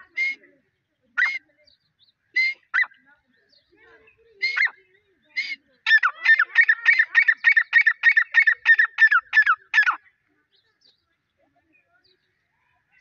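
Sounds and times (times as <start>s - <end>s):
bird calling ringing notes: 1.2s - 3.1s, 4.1s - 10.0s.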